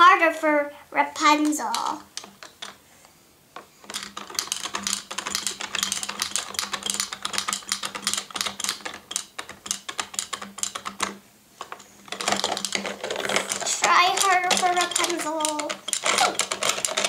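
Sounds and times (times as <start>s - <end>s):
plastic toys clattering down ramp: 3.8s - 17.0s.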